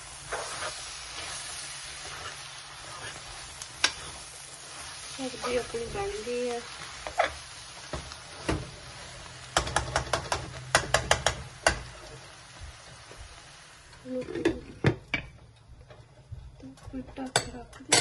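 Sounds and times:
metal ladle stirring in a pan: 0.0s - 12.2s
faint sizzle: 0.0s - 18.0s.

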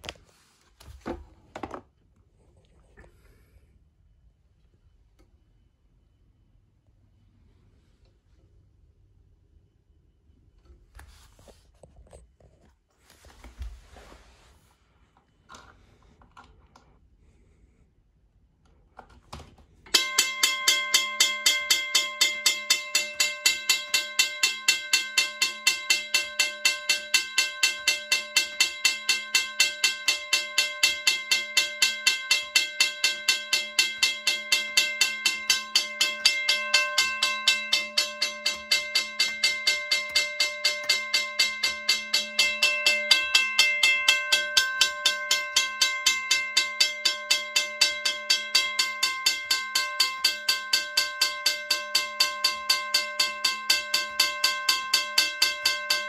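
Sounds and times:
railroad crossing bell ringing: 19.9s - 56.0s.

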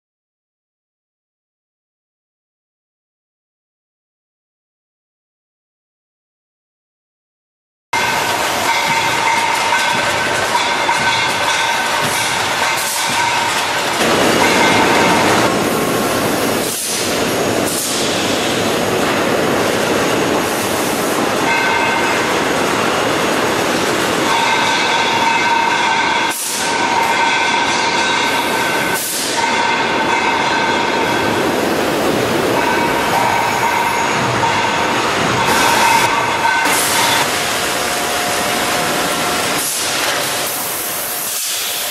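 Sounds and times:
machine whine: 8.0s - 41.9s
machinery running: 8.0s - 41.9s.

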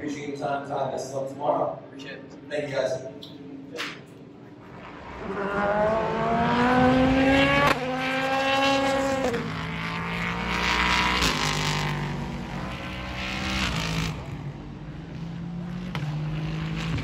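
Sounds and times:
racing engine at high revs: 4.6s - 17.0s.

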